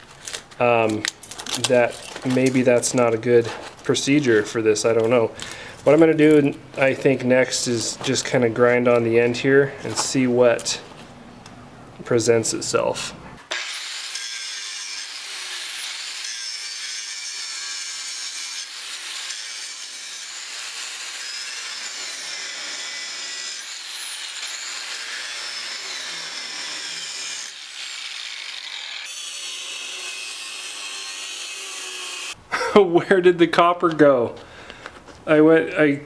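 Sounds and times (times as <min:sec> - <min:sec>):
angle grinder grinding metal: 0:13.5 - 0:32.4.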